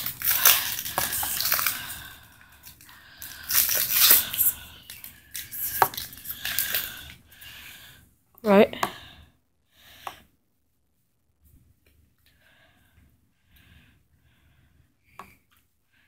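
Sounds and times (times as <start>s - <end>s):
cards sliding out of pack: 0.0s - 2.1s, 3.2s - 7.0s
foil wrapper crinkling and tearing: 0.0s - 7.1s.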